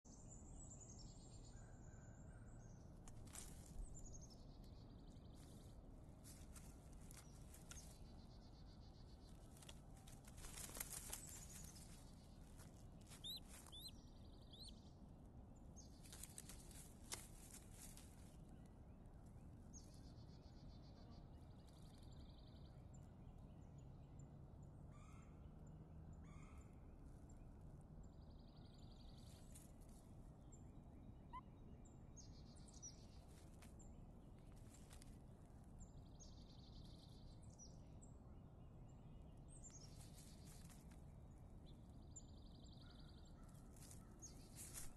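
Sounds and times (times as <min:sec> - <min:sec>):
faint songbirds chirping: 0:00.0 - 0:44.9
soft clicks and rustles: 0:03.0 - 0:04.0, 0:05.3 - 0:08.2, 0:09.2 - 0:13.8, 0:15.9 - 0:18.7, 0:33.1 - 0:35.8, 0:39.6 - 0:41.8, 0:43.5 - 0:44.9.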